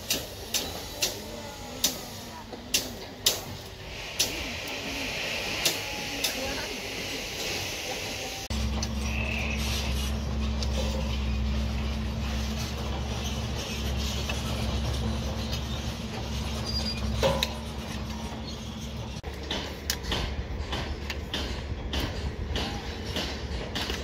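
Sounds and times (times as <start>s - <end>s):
engine droning: 8.4s - 22.6s.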